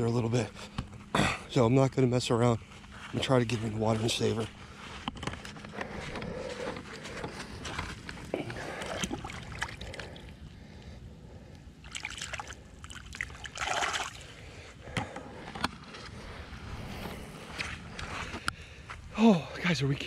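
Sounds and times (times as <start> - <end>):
water splashing and sloshing: 8.6 - 10.3, 11.8 - 14.4.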